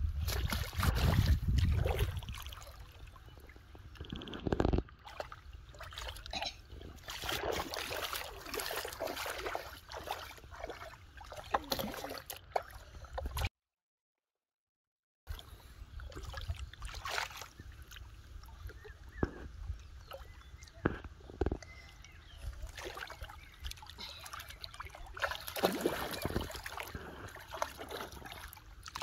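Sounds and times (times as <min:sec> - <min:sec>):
low rumble on microphone: 0:00.0 - 0:04.9
water splashing and sloshing: 0:00.0 - 0:13.5, 0:15.3 - 0:29.0.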